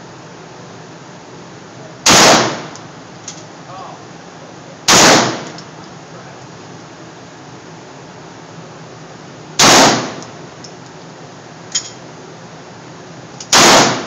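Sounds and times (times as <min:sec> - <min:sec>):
pistol shots echoing: 0:02.1 - 0:02.8, 0:04.9 - 0:05.6, 0:09.6 - 0:10.2, 0:13.5 - 0:14.0.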